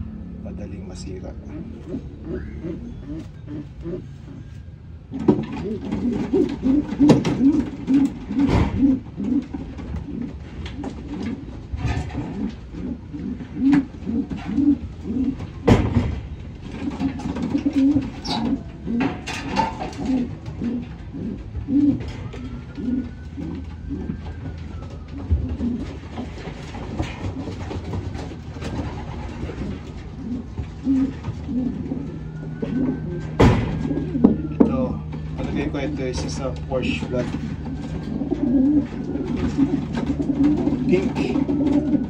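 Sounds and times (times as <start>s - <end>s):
pigeons cooing: 0.0s - 42.0s
sharp knocks: 15.6s - 16.3s, 33.4s - 34.0s.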